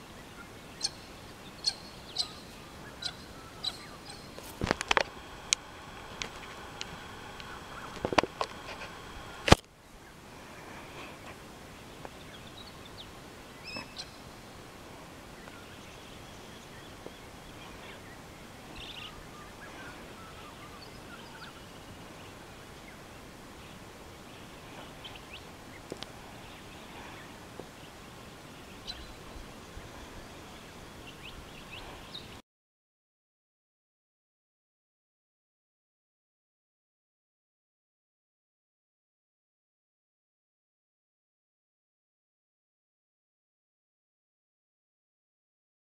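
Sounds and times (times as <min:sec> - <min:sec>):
bird calls and chirps: 0:00.0 - 0:05.0, 0:05.8 - 0:09.3, 0:10.9 - 0:14.7, 0:15.3 - 0:32.4
steady background hiss: 0:00.0 - 0:32.4
faint clicks: 0:04.4 - 0:09.7, 0:25.8 - 0:26.2.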